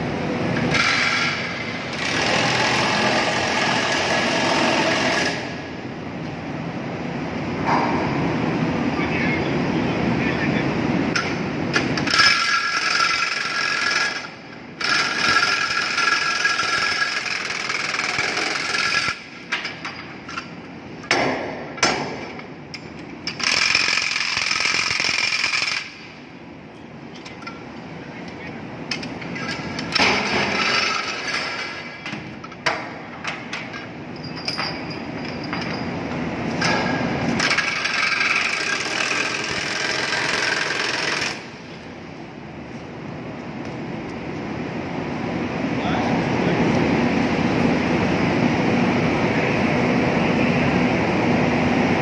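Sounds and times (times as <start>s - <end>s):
machinery noise: 27.0s - 41.9s
steel chains clanking on deck: 33.6s - 36.2s.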